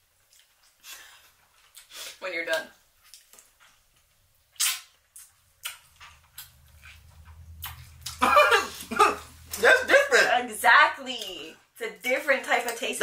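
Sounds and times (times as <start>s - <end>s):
soft mouth smacks and clicks: 3.0s - 8.2s
person speaking: 8.1s - 11.3s.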